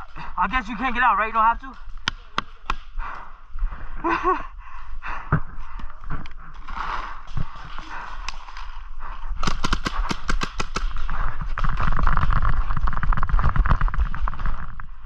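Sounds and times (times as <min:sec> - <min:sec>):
paintball marker rapid shots: 0:09.4 - 0:12.0.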